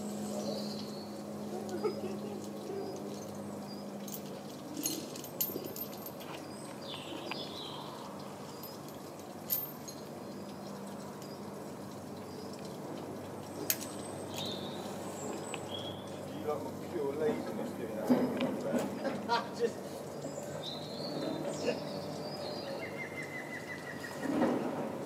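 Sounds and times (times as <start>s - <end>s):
metal rigging hardware clicks: 4.0s - 7.4s.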